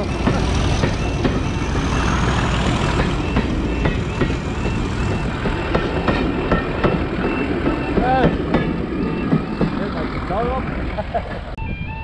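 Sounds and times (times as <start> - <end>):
locomotive rumbling: 0.0 - 12.0.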